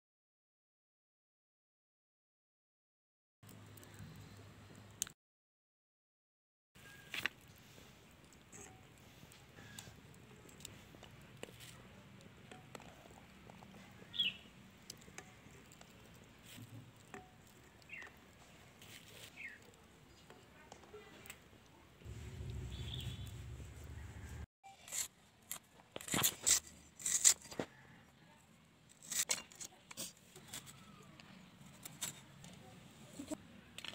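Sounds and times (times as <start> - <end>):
low rumble: 22.1 - 24.5
falling chirps: 22.2 - 24.4.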